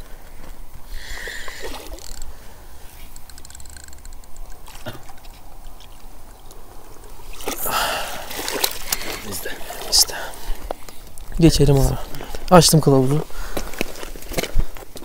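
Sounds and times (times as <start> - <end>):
water splash: 4.5 - 5.9, 7.2 - 10.1.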